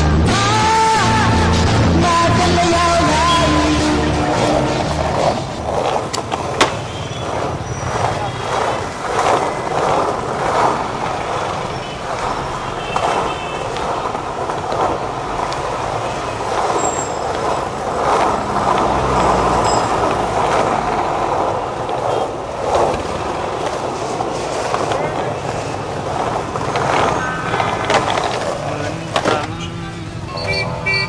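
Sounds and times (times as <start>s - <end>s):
skateboard wheels rolling on asphalt: 0.0s - 31.0s
street traffic: 0.0s - 31.0s
skateboard clicks: 4.8s - 29.7s
vehicle engine rumbling past: 15.0s - 23.4s.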